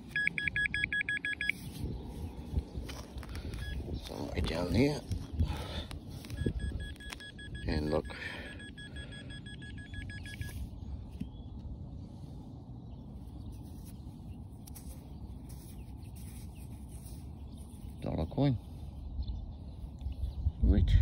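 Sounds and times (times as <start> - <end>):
metal detector beeping: 0.0 - 2.0, 3.4 - 4.4, 6.2 - 10.7
rustling and handling noise: 1.3 - 7.4, 13.1 - 19.0.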